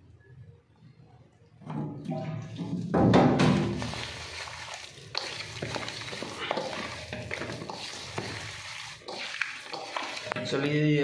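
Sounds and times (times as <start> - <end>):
hand mixing wet meat in bowl: 3.4 - 11.0.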